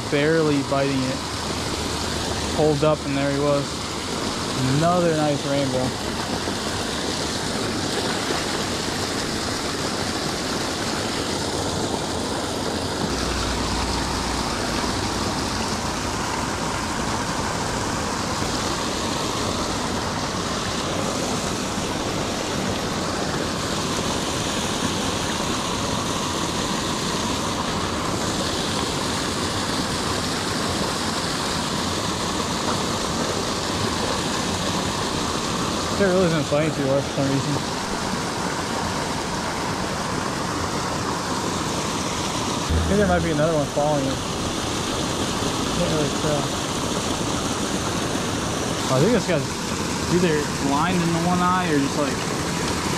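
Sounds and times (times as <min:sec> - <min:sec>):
waterfall rushing into pool: 0:00.0 - 0:52.9.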